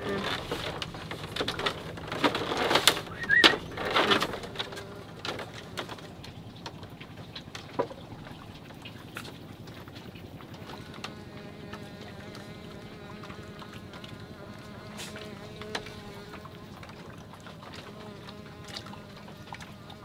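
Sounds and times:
insect buzzing: 0:00.0 - 0:06.3, 0:10.5 - 0:20.0.

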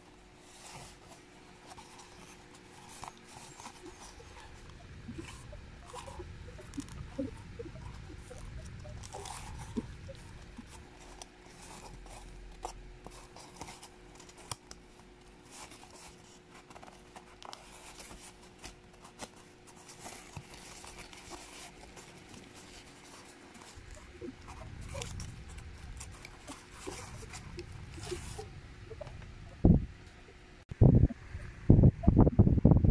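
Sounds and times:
cardboard rustling: 0:00.1 - 0:29.0.

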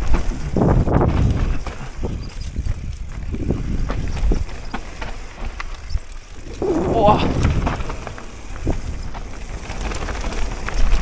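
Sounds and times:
bike knocks and rattles: 0:00.0 - 0:11.0
bike tyres crunching over rocks: 0:00.0 - 0:11.0
heavy low rumble: 0:06.4 - 0:08.8.

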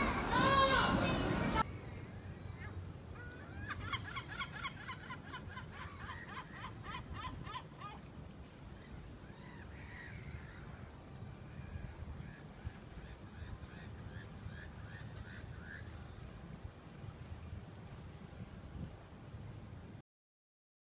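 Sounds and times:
gull calling: 0:01.6 - 0:08.1.

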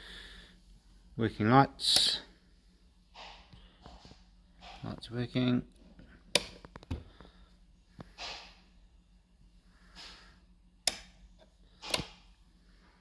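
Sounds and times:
switchboard control clicks: 0:10.8 - 0:11.1.

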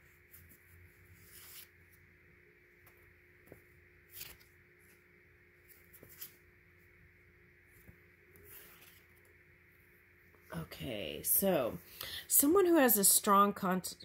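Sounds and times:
faint steady hum: 0:00.0 - 0:14.0
soft handling rustles: 0:02.8 - 0:06.5.

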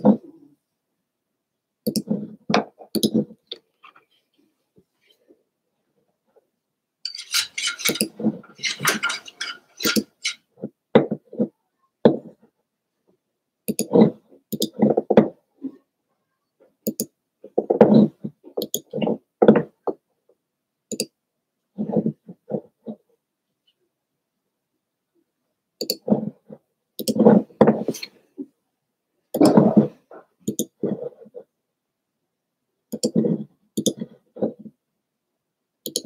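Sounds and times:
hard objects clattering: 0:07.1 - 0:10.6.

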